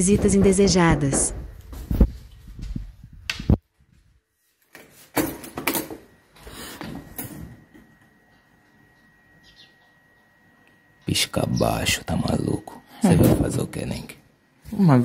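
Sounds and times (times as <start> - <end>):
clattering knocks and rustling: 0.0 - 2.9.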